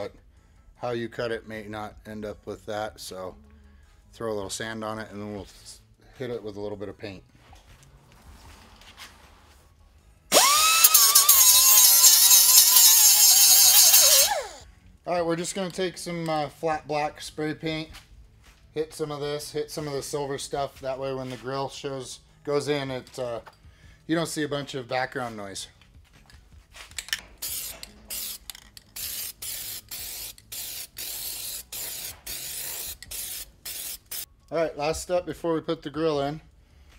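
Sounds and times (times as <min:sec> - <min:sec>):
pneumatic sander whining: 0:10.3 - 0:14.6
air hiss: 0:27.4 - 0:28.4, 0:29.0 - 0:34.3.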